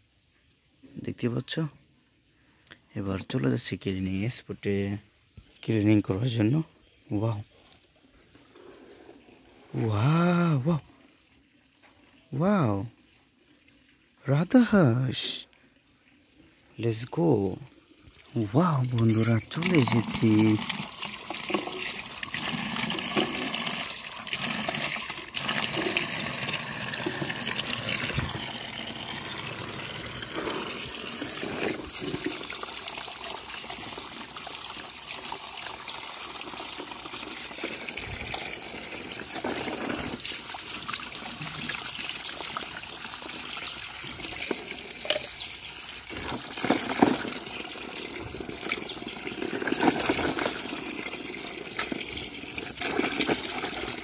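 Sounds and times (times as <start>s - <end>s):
tap water pouring into a tub: 7.9s - 54.0s
toy cars rinsed with splashing: 16.9s - 54.0s.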